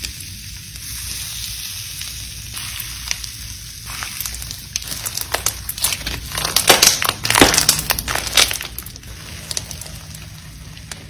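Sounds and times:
slime squishing with clicks and pops: 4.0 - 10.0.

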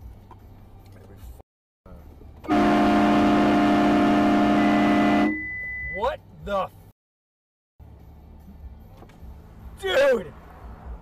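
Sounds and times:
low road noise: 0.0 - 6.9, 7.8 - 11.0
vehicle horn blast: 2.4 - 5.8.

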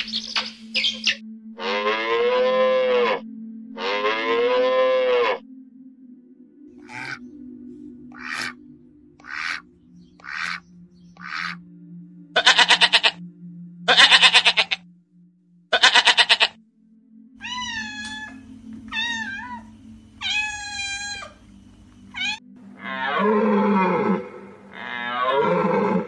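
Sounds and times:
deer calling: 3.8 - 5.4, 6.8 - 7.2, 8.1 - 8.6, 9.2 - 11.6, 12.4 - 13.2, 13.9 - 14.8, 15.7 - 16.6, 17.4 - 21.4, 22.1 - 26.0
goat bleating: 12.4 - 13.2, 13.9 - 14.8, 15.7 - 16.6, 20.2 - 21.4
young cat meowing: 17.4 - 19.6, 20.2 - 21.4, 22.1 - 22.4.

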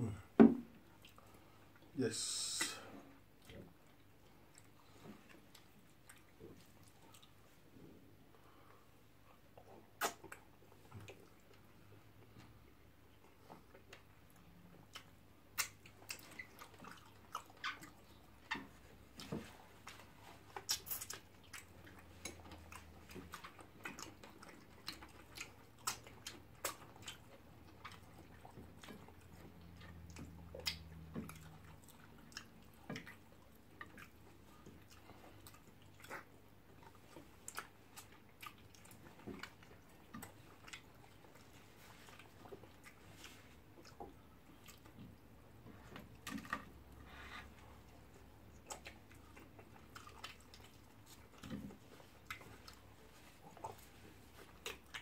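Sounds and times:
chewing: 0.8 - 1.9, 2.6 - 55.0
lip smacks: 9.6 - 11.6, 14.8 - 45.1.

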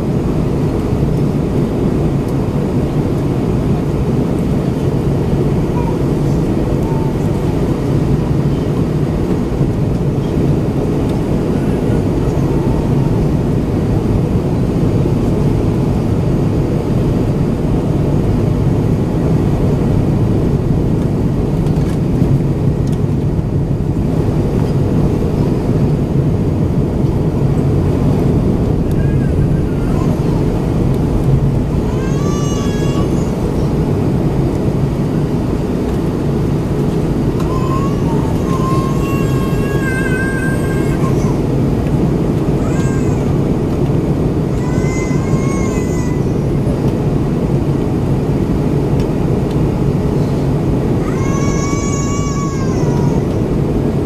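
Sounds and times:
airflow rumble in cabin: 0.0 - 54.0
jet engines droning: 0.0 - 54.0
steady low hum: 0.0 - 54.0.

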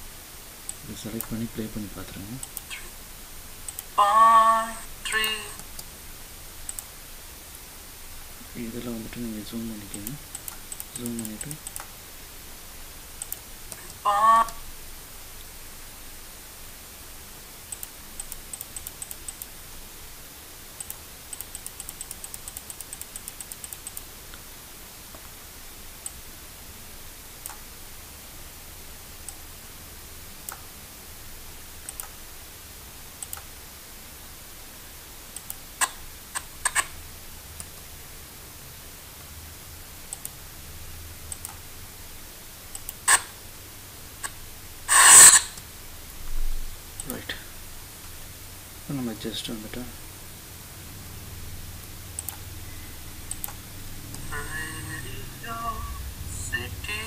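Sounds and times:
low steady hiss: 0.0 - 57.0
mouse and keyboard clicks: 35.4 - 36.9, 42.7 - 43.3.

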